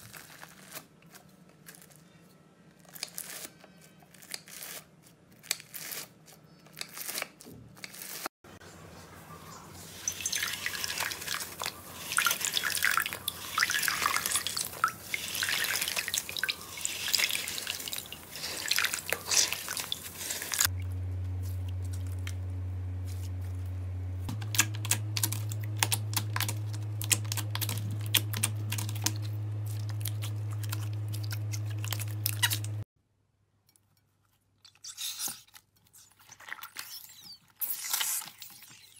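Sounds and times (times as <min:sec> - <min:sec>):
steady low hum: 0:08.5 - 0:32.9
wet foam crackling and squelching: 0:09.8 - 0:20.8.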